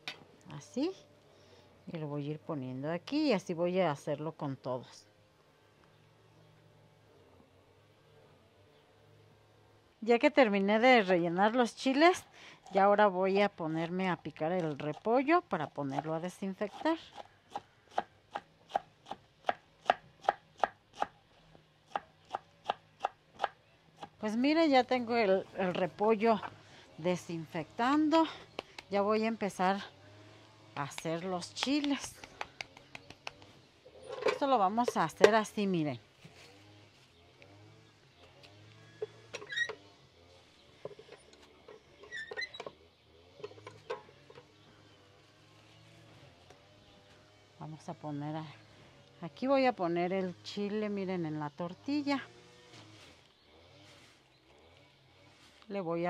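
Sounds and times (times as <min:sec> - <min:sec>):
squeaky hinge creaks: 0:39.0 - 0:39.8, 0:42.0 - 0:42.8.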